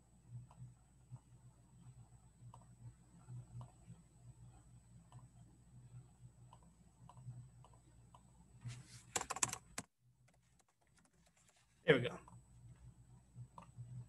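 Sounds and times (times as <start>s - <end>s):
keyboard keystrokes: 9.2s - 11.6s.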